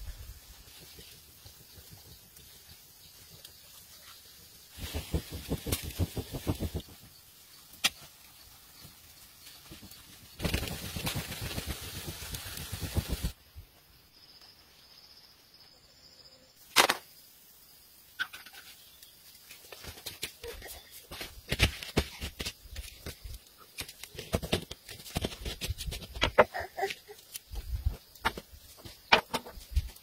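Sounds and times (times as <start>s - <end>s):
meat sizzling over charcoal: 0.0s - 13.4s
fire crackling and popping: 0.1s - 13.4s, 21.4s - 30.0s.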